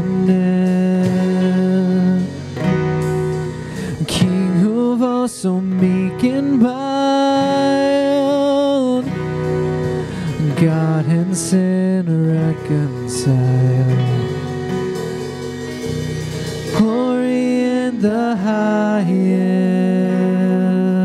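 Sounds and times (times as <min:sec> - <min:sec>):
person singing: 0:00.0 - 0:02.6, 0:03.7 - 0:09.3, 0:10.0 - 0:15.2, 0:16.7 - 0:21.0
acoustic and electric guitars: 0:00.0 - 0:21.0.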